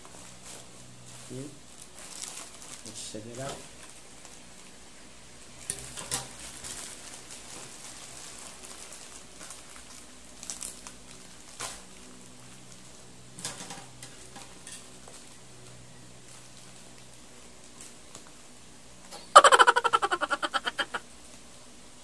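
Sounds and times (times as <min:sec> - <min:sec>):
plastic mailer bag crinkling: 0:01.8 - 0:03.0, 0:06.5 - 0:11.3.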